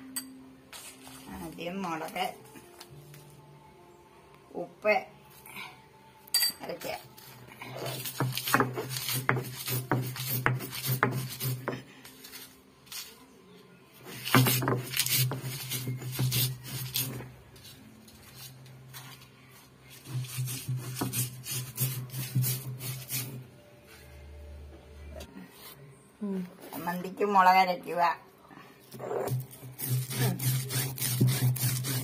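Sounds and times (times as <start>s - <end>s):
grinding stone scraping on stone: 14.1s - 17.7s, 29.0s - 32.0s.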